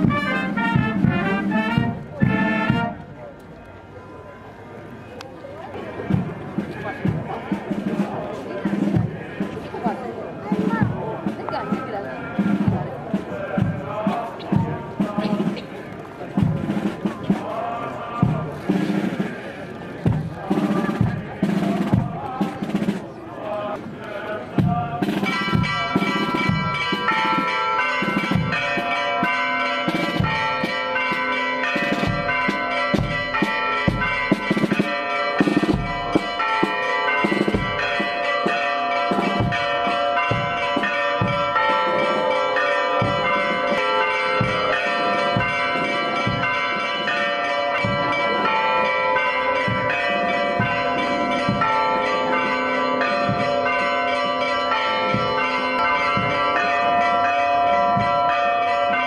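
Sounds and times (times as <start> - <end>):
church bells ringing: 0.0 - 8.9, 25.0 - 59.0.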